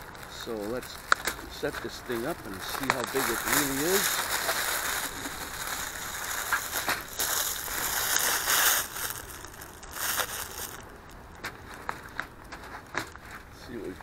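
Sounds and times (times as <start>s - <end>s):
plastic wrapping crinkling: 0.0s - 13.5s.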